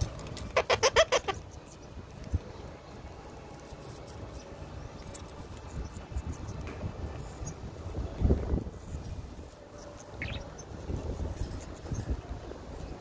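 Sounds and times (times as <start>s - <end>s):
parakeet calling: 0.5s - 1.9s, 9.8s - 10.8s.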